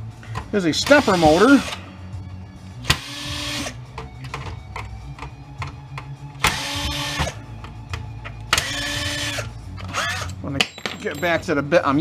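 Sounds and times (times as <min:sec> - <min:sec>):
cordless drill whining: 0:00.8 - 0:01.8, 0:08.6 - 0:10.3.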